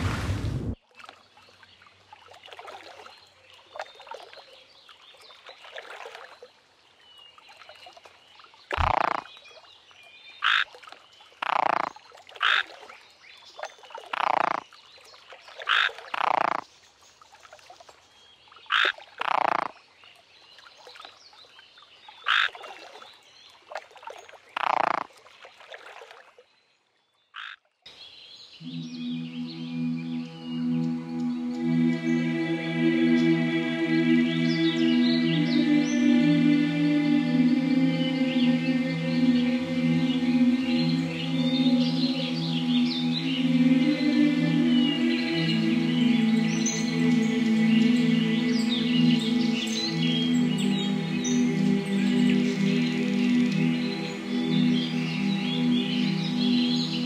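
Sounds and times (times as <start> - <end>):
faint background animal calls: 8.7 - 9.6, 10.4 - 12.8, 13.6 - 14.7, 15.6 - 16.8, 18.6 - 20.2, 22.2 - 22.9, 24.5 - 25.1, 27.3 - 28.0.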